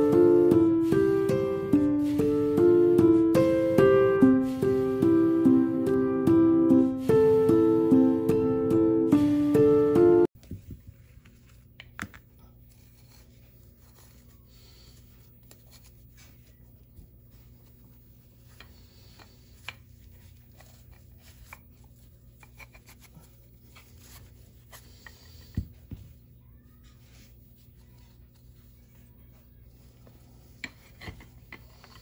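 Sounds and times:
twine rustling and scratching: 0:12.5 - 0:32.0.

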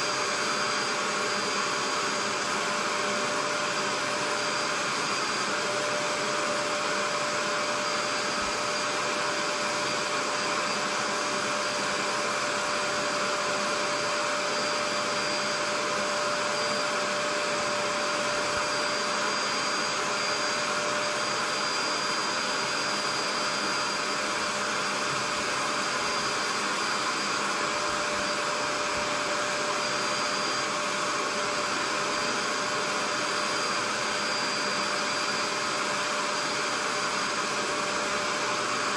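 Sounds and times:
spot cleaner suction motor droning: 0:00.0 - 0:38.9.

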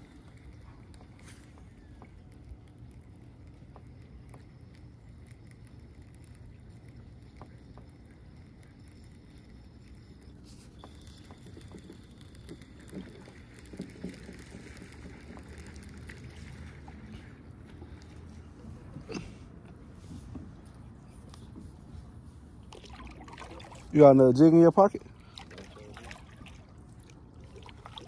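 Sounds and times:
fishing reel and rod clicks: 0:00.0 - 0:18.2.

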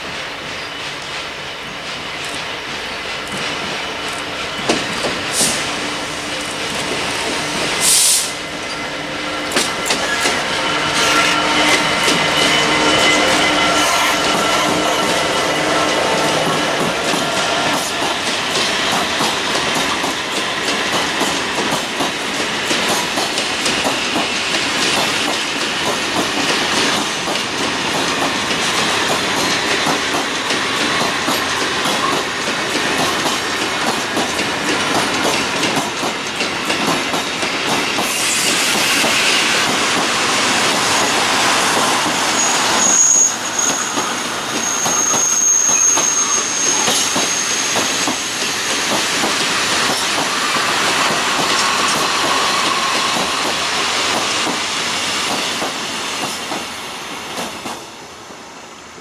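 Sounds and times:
train wheels clattering over rail joints: 0:00.0 - 0:42.4, 0:46.8 - 0:56.7
high wheel squeal: 0:07.2 - 0:17.8, 0:40.2 - 0:53.7.

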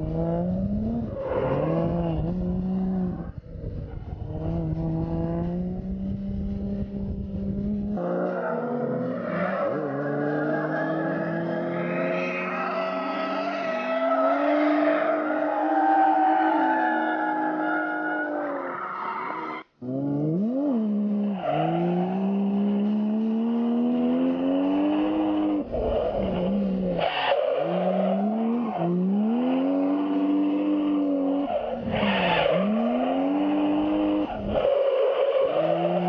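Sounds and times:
tyres skidding and squealing: 0:00.6 - 0:04.8, 0:08.0 - 0:36.0
car engine revving hard: 0:04.1 - 0:15.6, 0:19.8 - 0:36.0.

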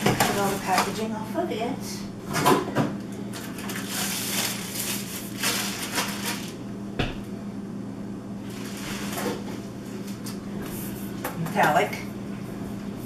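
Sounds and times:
plastic wrapping crinkling: 0:03.4 - 0:06.6, 0:08.4 - 0:09.5.

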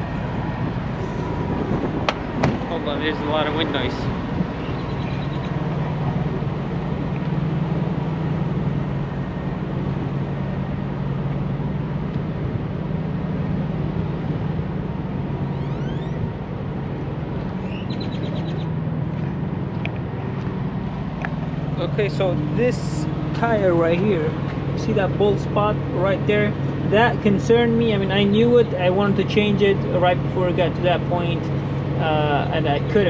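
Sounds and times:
wind buffeting microphone: 0:00.0 - 0:29.8
diesel truck engines idling: 0:00.0 - 0:33.0
bird chirps: 0:04.6 - 0:05.6, 0:17.6 - 0:18.8.

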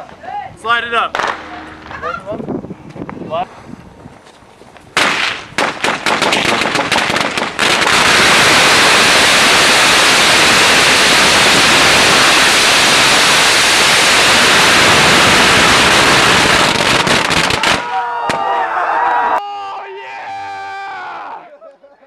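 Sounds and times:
firecrackers crackling: 0:01.1 - 0:02.1, 0:04.8 - 0:18.4.

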